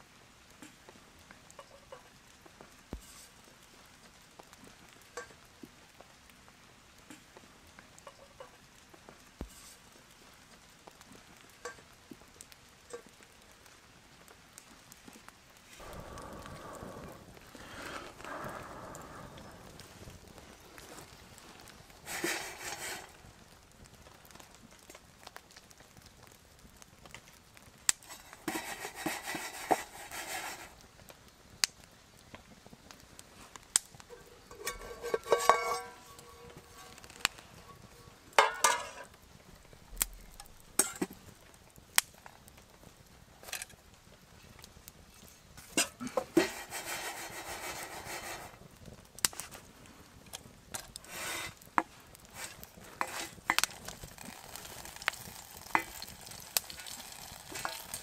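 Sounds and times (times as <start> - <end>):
campfire crackling: 0.0 - 58.0
seeds rattling in metal pan: 17.2 - 23.2, 28.0 - 30.8, 34.0 - 39.1, 45.8 - 48.6, 52.3 - 58.0.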